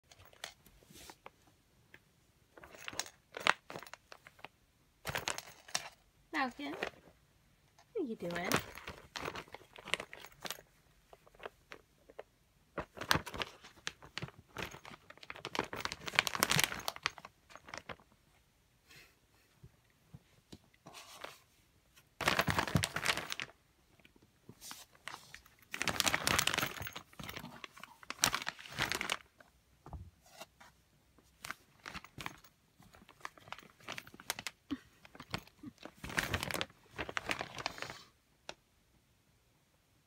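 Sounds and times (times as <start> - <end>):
plastic bags crinkling: 8.0 - 11.8, 12.8 - 18.0, 22.2 - 23.6, 24.9 - 29.4, 31.4 - 38.0.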